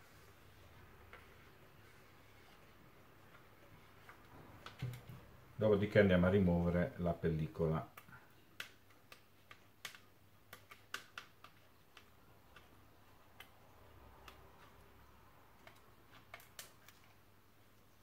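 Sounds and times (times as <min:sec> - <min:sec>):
fingers clicking on plastic lens: 0:07.9 - 0:17.1.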